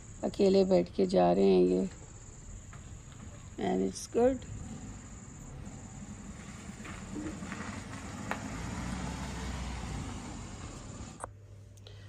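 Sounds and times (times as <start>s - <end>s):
car driving past: 2.6s - 11.3s.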